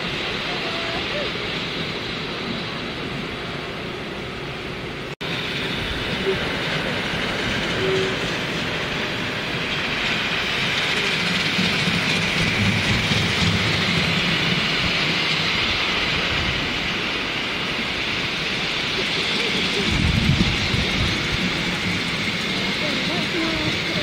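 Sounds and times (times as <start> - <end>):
train wheels clattering on rails: 5.2 - 24.0.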